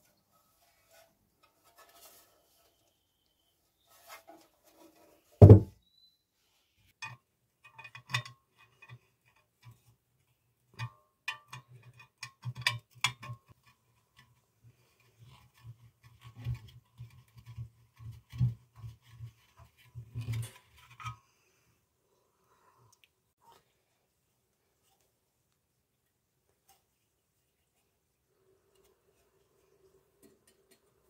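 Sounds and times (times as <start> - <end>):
heavy thump: 5.4 - 5.7
small metallic clicks and taps: 30.2 - 31.0.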